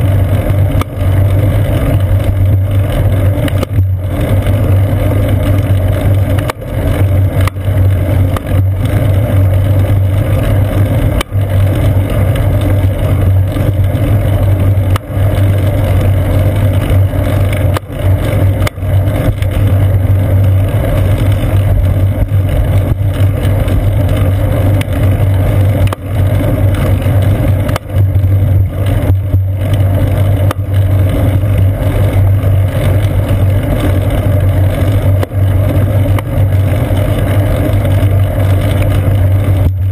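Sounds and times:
wind and road rumble: 0:00.0 - 0:39.9.

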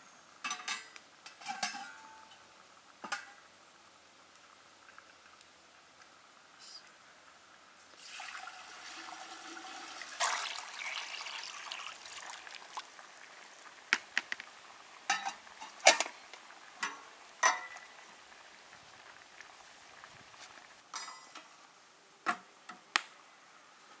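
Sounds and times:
water pouring: 0:07.9 - 0:13.8.

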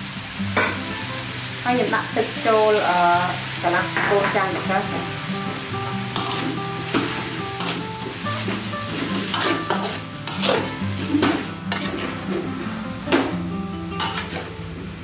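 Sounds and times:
food sizzling in wok: 0:00.0 - 0:15.0
metal spatula scraping wok: 0:06.1 - 0:12.8, 0:14.0 - 0:14.6.

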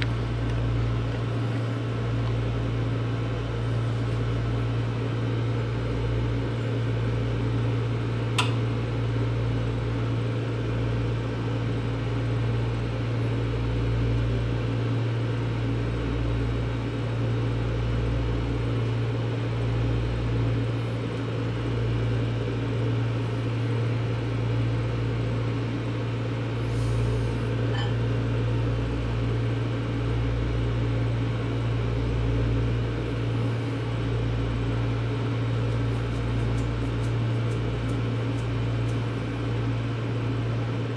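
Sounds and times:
microwave oven humming: 0:00.0 - 0:40.9
sharp click: 0:08.4 - 0:08.6.

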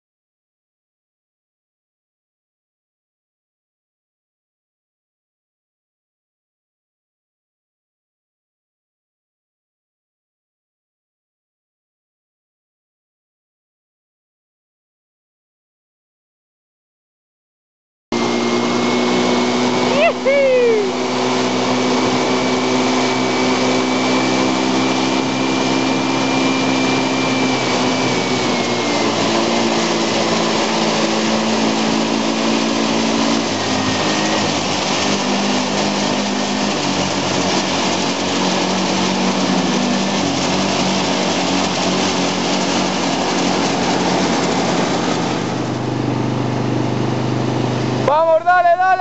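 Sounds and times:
quad bike engine revving: 0:18.2 - 0:48.2.

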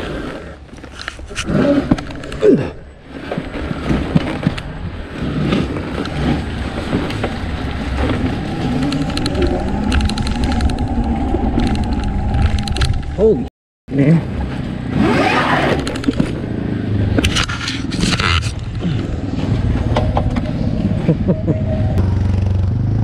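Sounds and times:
tyre noise: 0:00.0 - 0:13.4
wind rushing: 0:06.0 - 0:13.5.

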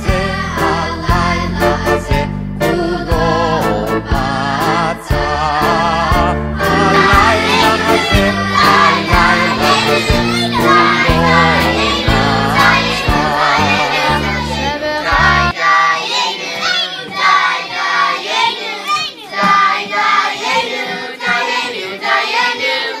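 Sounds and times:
instrumental accompaniment with bass: 0:00.0 - 0:15.6
children singing in unison: 0:00.0 - 0:23.0.

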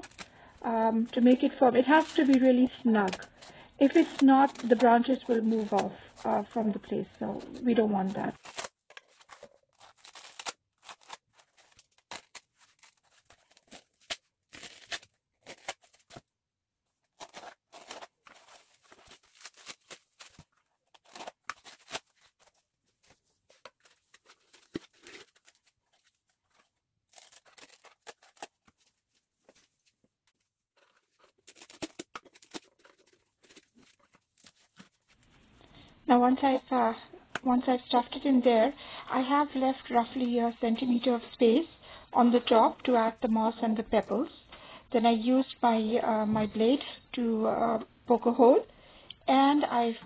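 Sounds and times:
foam being cut and torn: 0:00.0 - 0:16.3, 0:17.0 - 0:29.0, 0:30.8 - 0:35.1.

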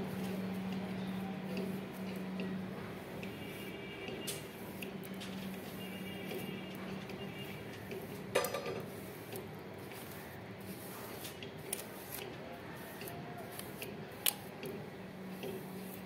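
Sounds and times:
steady low hum: 0:00.0 - 0:07.5
comb brushing through hair: 0:08.8 - 0:14.5.

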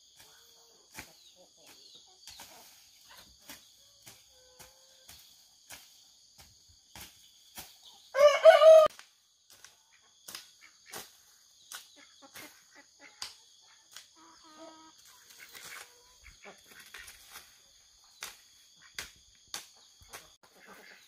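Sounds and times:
rooster crowing: 0:08.1 - 0:08.9
high insect drone: 0:10.6 - 0:19.4.

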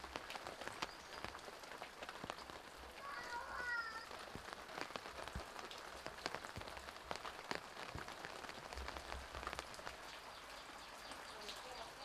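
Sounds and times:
rain drops on wet ground: 0:00.0 - 0:12.0.

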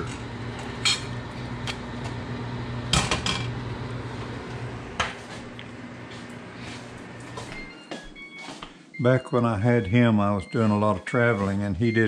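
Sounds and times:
steady low hum: 0:00.0 - 0:07.8.

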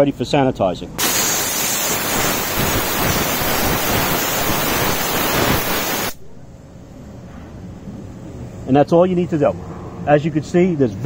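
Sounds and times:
steam jet hissing: 0:01.0 - 0:06.2.

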